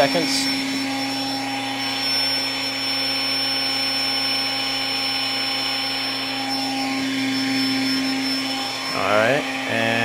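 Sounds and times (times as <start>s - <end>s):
electric air pump running: 0.0s - 10.0s.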